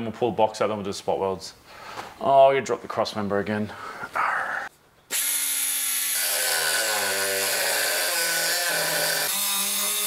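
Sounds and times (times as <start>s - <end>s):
die grinder cutting sheet steel: 5.1s - 10.0s.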